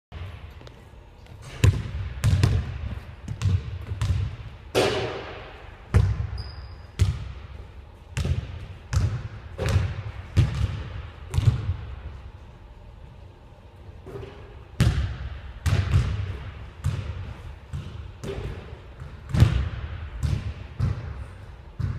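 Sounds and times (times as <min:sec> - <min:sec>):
basketball bouncing on wooden floor: 0:01.6 - 0:04.4, 0:05.9 - 0:07.4, 0:08.2 - 0:11.8, 0:14.2 - 0:21.1.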